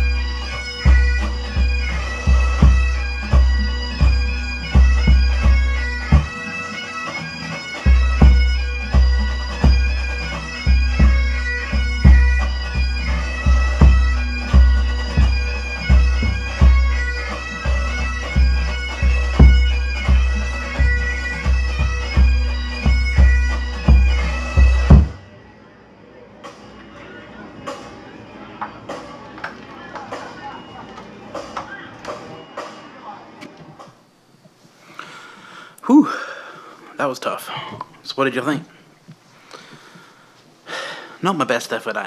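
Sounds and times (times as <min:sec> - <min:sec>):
bagpipe tune with drone: 0:00.0 - 0:25.4
bass drum booming: 0:23.9 - 0:25.2.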